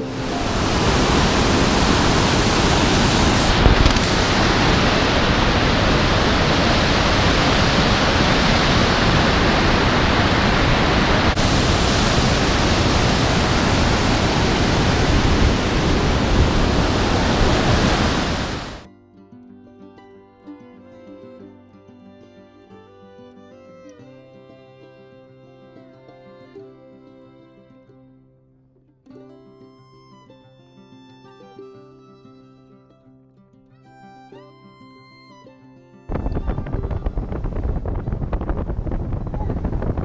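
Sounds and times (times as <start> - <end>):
water rushing over rocks: 0.0 - 18.9.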